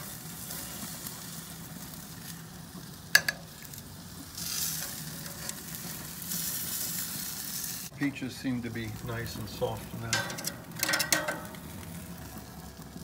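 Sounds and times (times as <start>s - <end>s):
meat sizzling on grill: 0.0s - 13.0s
metal tongs clacking: 3.2s - 3.5s, 10.0s - 11.8s.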